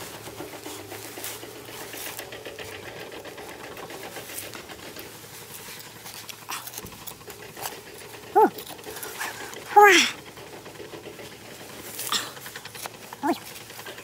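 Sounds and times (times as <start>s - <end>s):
metal trowel scraping dirt: 0.0s - 9.8s
hands raking through dry soil: 0.0s - 14.0s.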